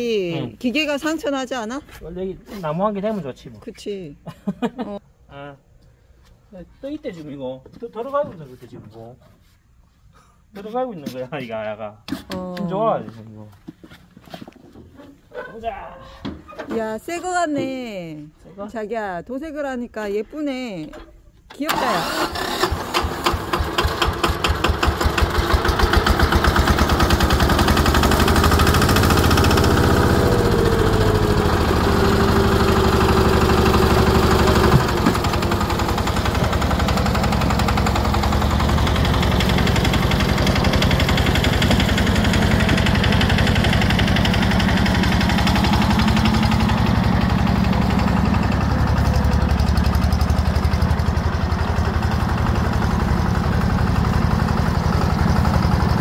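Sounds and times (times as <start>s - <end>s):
tractor diesel engine running: 21.7s - 56.0s.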